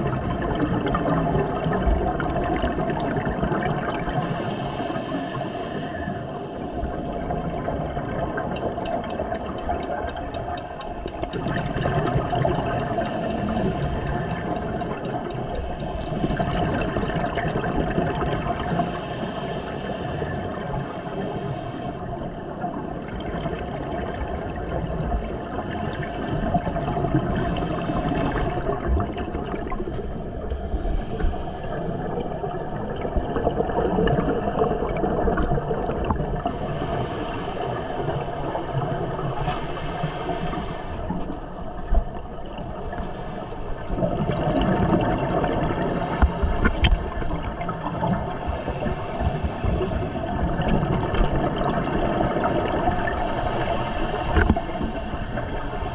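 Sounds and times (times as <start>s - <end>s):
exhaled bubbles: 0.0s - 4.4s, 7.0s - 18.9s, 32.0s - 36.7s, 43.8s - 55.9s
underwater water rumble: 0.0s - 55.9s.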